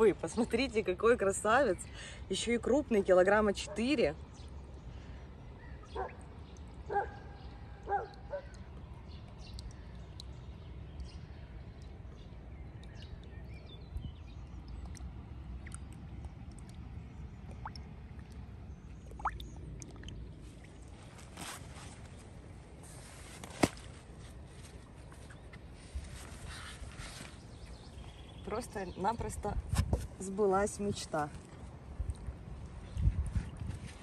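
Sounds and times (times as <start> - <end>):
water dripping and splashing: 5.9 - 21.4, 31.4 - 33.7.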